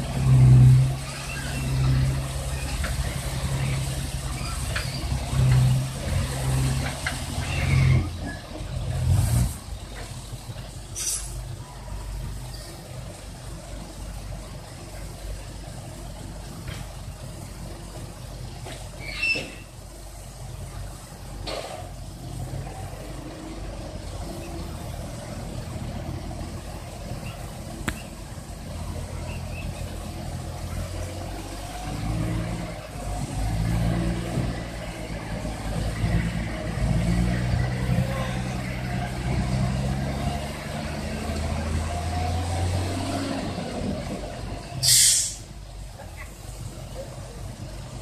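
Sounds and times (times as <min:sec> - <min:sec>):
diesel truck engine running: 0:00.0 - 0:48.0
air hiss burst: 0:44.8 - 0:45.5.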